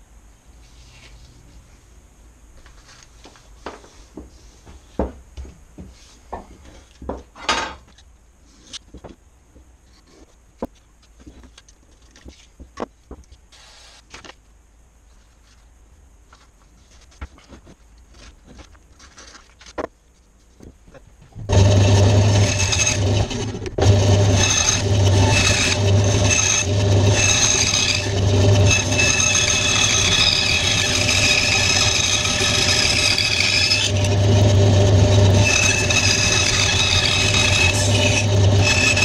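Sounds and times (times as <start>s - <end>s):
paper handling: 16.3s - 19.9s
bandsaw cutting wood: 21.5s - 39.0s.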